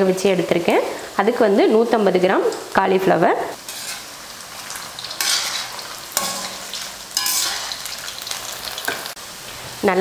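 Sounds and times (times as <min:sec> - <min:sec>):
food sizzling in hot oil: 0:00.0 - 0:10.0
slotted spoon stirring: 0:03.7 - 0:04.1, 0:05.1 - 0:07.8.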